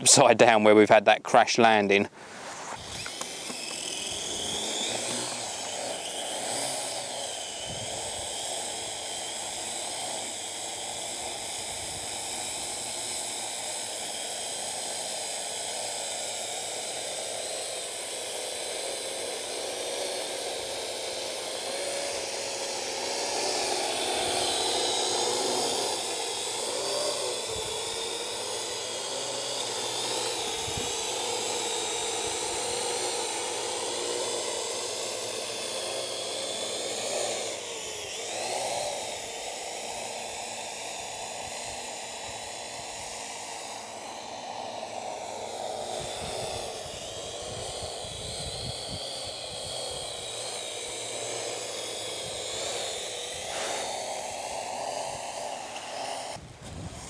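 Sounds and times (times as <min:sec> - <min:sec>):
drone propellers whining: 0:00.0 - 0:57.0
wind buffeting microphone: 0:07.7 - 0:08.2, 0:47.4 - 0:49.0, 0:56.4 - 0:57.0.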